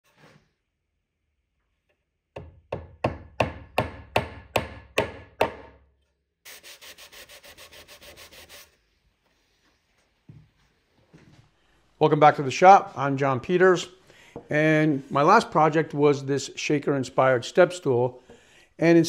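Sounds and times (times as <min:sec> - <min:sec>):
rubbing strokes on wood: 0:06.5 - 0:10.1.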